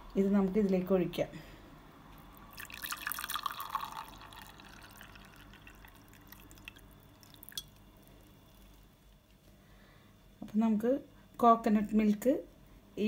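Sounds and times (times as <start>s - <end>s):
drips: 2.3s - 8.9s
tea pouring into glass: 2.4s - 9.0s.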